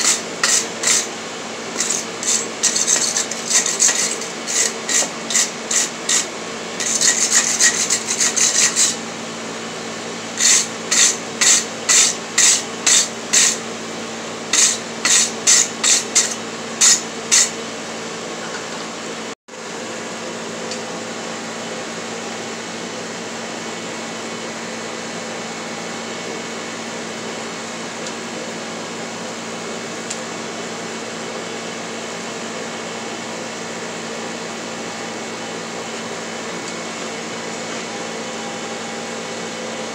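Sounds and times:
scrubbing strokes on steel bar: 0:00.0 - 0:01.1, 0:01.8 - 0:09.0.

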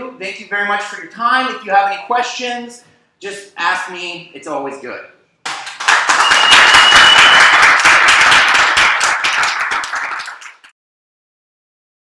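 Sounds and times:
audience applauding: 0:05.5 - 0:10.7.

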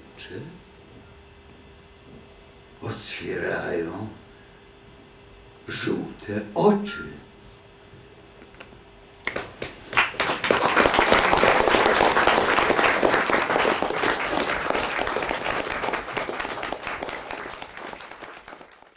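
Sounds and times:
audience applauding: 0:09.3 - 0:18.9.

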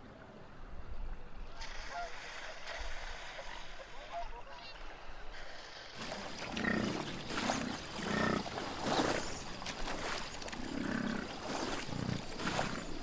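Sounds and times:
animals growling: 0:06.0 - 0:09.4, 0:10.5 - 0:13.0.

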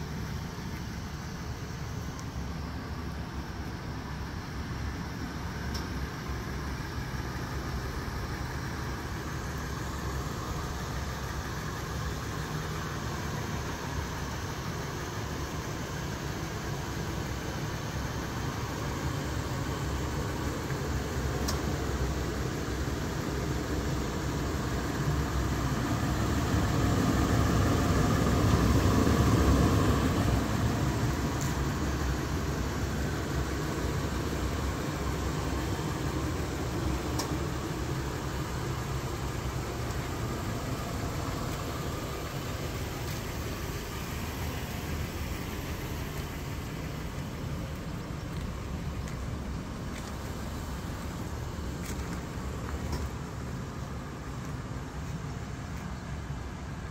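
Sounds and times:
car engine idling: 0:00.0 - 0:56.9.

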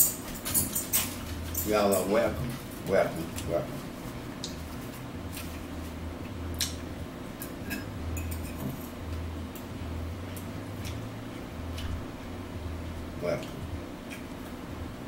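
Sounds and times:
forks clinking on plates: 0:00.0 - 0:02.2, 0:07.4 - 0:09.0
low steady hum: 0:00.0 - 0:15.0.

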